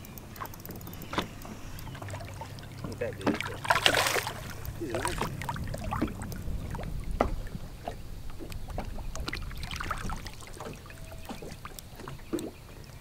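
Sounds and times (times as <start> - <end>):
small clicks and knocks: 0.0 - 2.0
water splashing and dripping: 0.3 - 13.0
wind rumble on microphone: 0.9 - 13.0.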